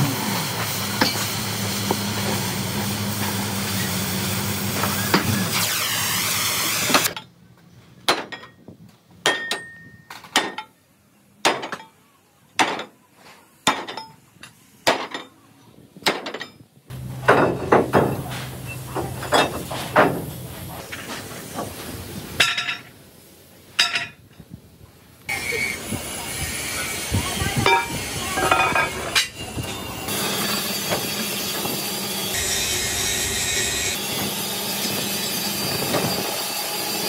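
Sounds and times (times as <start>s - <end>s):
workshop machine hum: 0.0s - 7.2s, 16.9s - 22.2s, 25.3s - 37.0s
hammer striking steel: 9.2s - 9.8s
loud steady hiss: 31.8s - 37.0s.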